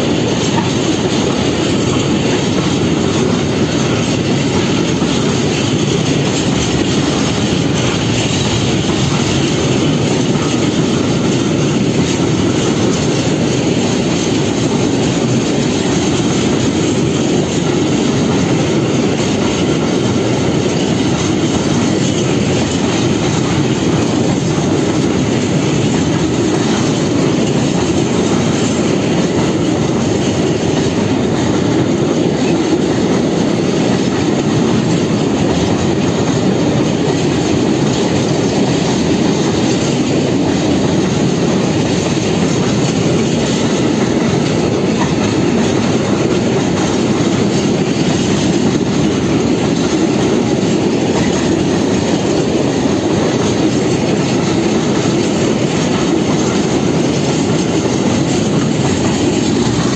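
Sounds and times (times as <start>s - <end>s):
freight train rolling past: 0.0s - 59.9s
steel wheels rolling on rails: 0.0s - 59.9s.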